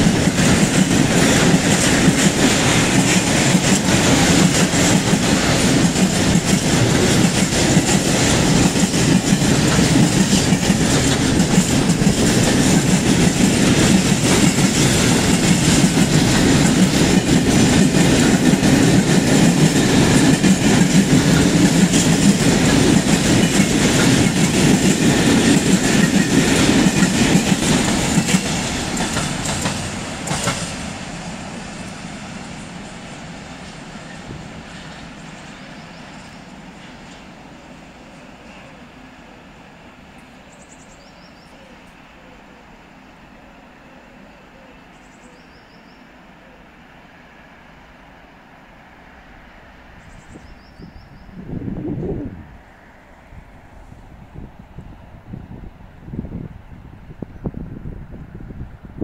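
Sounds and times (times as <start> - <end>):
freight train wheels clattering on rails: 0.0 - 38.8.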